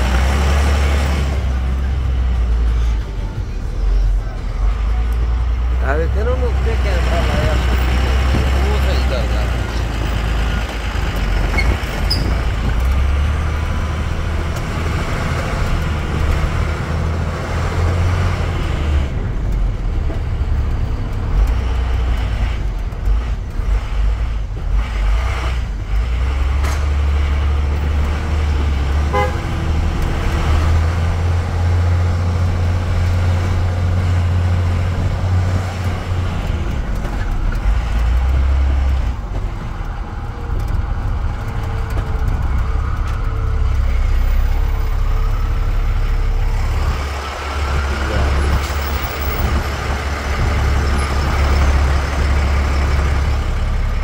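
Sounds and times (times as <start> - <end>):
road noise: 0.0 - 54.0
vehicle engine drone: 0.0 - 54.0
car horn tooting: 29.0 - 29.5.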